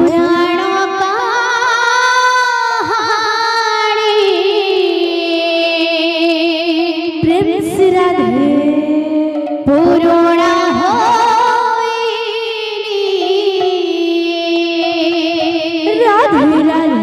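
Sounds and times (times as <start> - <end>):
woman singing long notes: 5.0 - 17.0.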